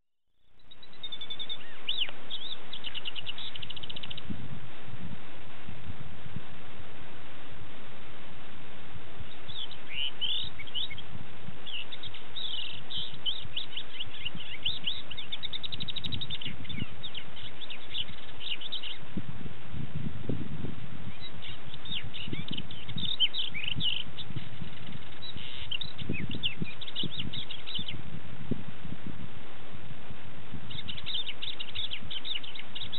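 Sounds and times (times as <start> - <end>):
lark singing: 0.6 - 4.3, 9.3 - 19.1, 21.0 - 28.0, 30.7 - 32.9
steady hiss: 0.6 - 32.9.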